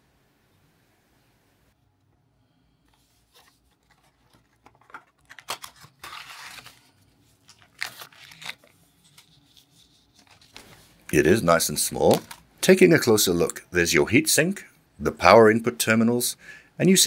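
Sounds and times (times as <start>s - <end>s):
plastic bag crinkling: 3.8s - 10.8s.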